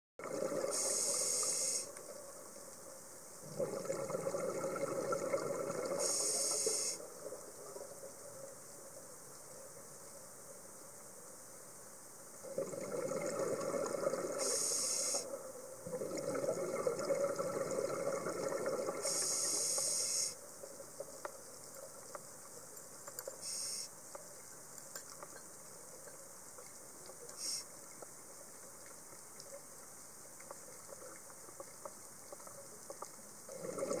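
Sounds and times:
exhaled bubbles rushing underwater: 0.2s - 1.1s, 3.4s - 6.2s, 12.5s - 14.6s, 15.8s - 19.3s, 33.5s - 34.0s
faint clicks: 19.1s - 33.4s.

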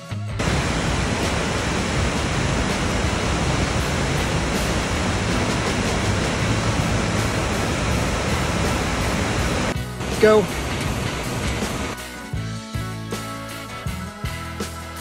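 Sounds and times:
waterfall rushing: 0.4s - 12.0s.

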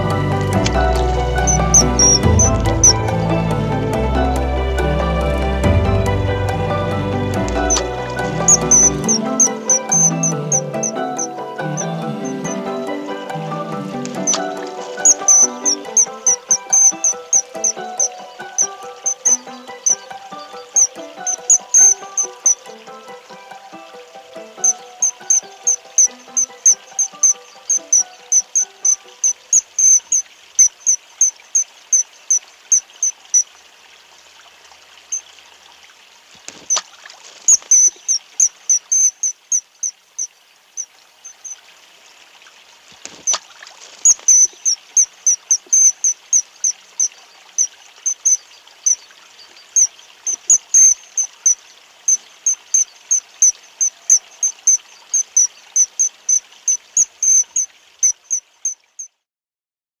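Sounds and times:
running water hiss: 0.0s - 59.2s
small animal chirping: 1.4s - 3.0s, 7.6s - 12.6s, 14.2s - 20.0s, 20.7s - 22.6s, 24.6s - 33.5s, 37.5s - 39.9s, 40.8s - 41.6s, 43.1s - 43.4s, 44.0s - 59.2s.

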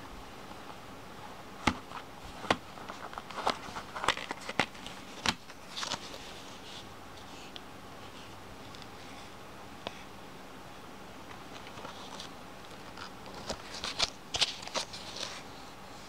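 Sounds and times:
soft cardboard rustle: 1.6s - 9.4s, 11.4s - 16.0s.

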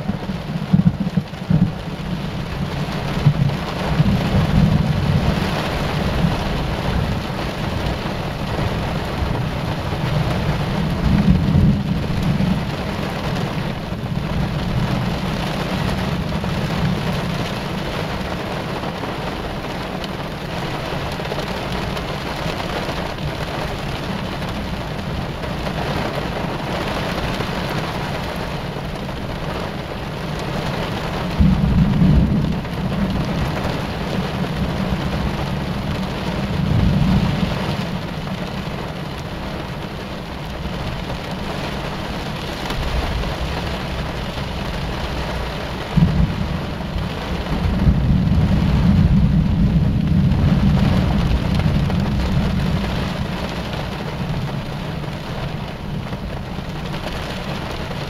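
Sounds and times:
rolling thunder: 0.0s - 19.6s, 30.3s - 38.8s, 42.2s - 54.7s
heavy rain on a car: 0.0s - 58.0s.

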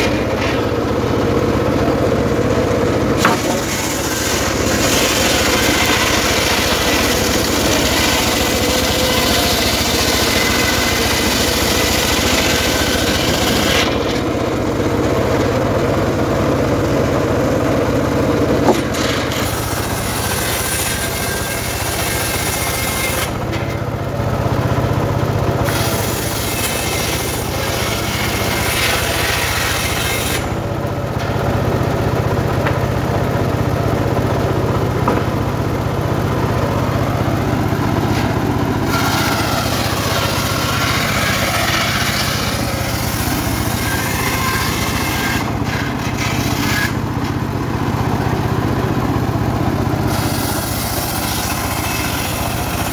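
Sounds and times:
saw blade cutting wood: 0.0s - 15.6s, 18.6s - 23.9s, 25.6s - 31.4s, 36.6s - 47.5s, 50.0s - 52.9s
engine drone: 0.0s - 52.9s.

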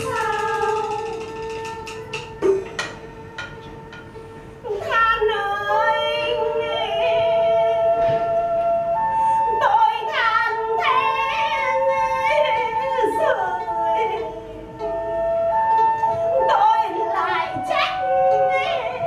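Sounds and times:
woman singing: 0.0s - 1.4s, 4.6s - 8.7s, 9.4s - 15.3s, 16.0s - 19.0s
held instrument notes: 0.0s - 19.0s.

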